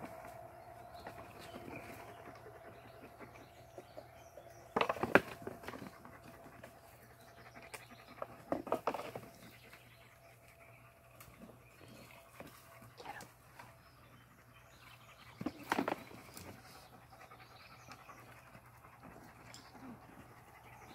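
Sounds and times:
knocks and scrapes: 0:08.2 - 0:09.6.

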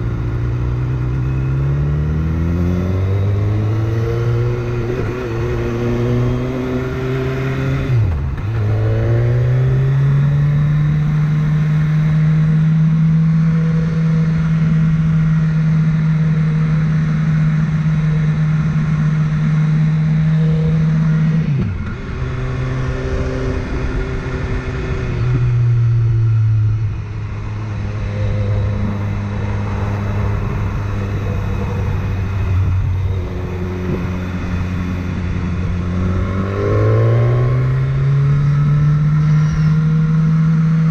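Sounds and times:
motorcycle engine running: 0:00.0 - 0:40.9
rush of wind: 0:21.0 - 0:40.9.

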